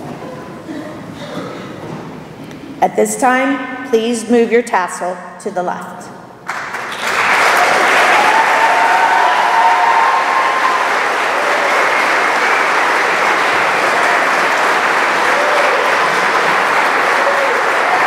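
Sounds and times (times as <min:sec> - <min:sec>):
audience applauding: 0:06.5 - 0:18.0.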